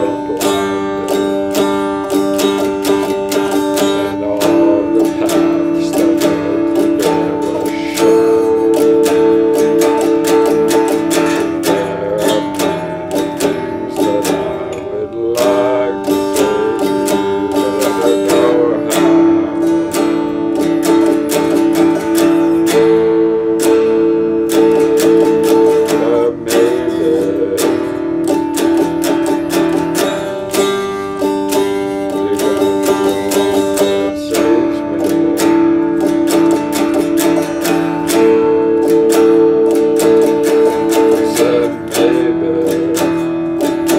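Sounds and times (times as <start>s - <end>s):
electric guitar chords strummed: 0.0s - 43.9s.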